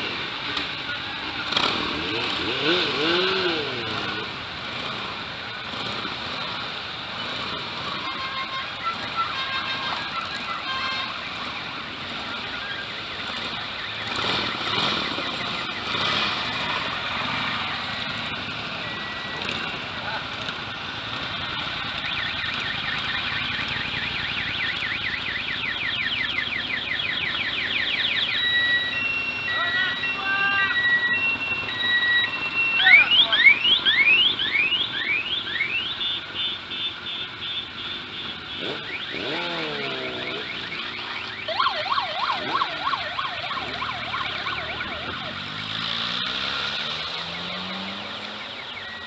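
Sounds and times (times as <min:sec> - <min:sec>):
passing motorcycles: 0:00.0 - 0:49.0
electronic siren wailing: 0:08.7 - 0:20.2, 0:21.8 - 0:36.5, 0:38.4 - 0:49.0
vehicle engine rising in pitch: 0:38.6 - 0:49.0.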